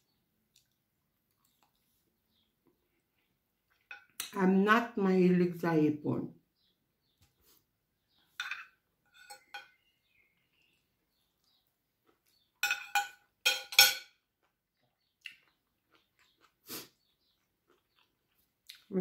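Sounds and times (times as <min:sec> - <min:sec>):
cutlery clinking on a plate: 0:08.4 - 0:09.8, 0:12.6 - 0:14.2.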